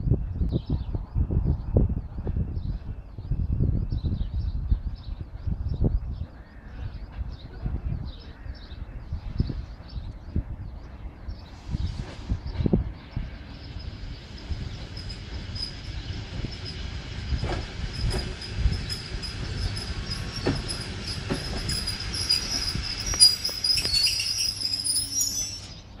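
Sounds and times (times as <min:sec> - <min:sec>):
low train rumble: 0:00.0 - 0:26.0
wheel and brake squeal: 0:14.4 - 0:26.0
wheels knocking over rail joints: 0:14.8 - 0:24.2.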